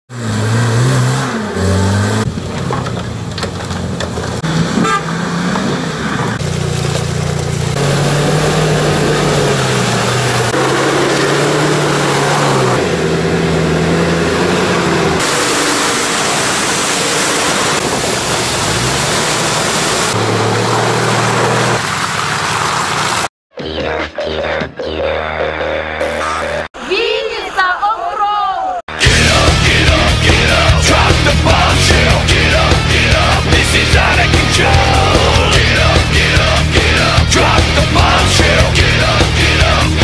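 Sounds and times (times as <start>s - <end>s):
off-road engines revving: 0.1s - 23.3s, 28.9s - 40.0s
tyres in mud: 0.3s - 12.6s, 13.8s - 23.3s.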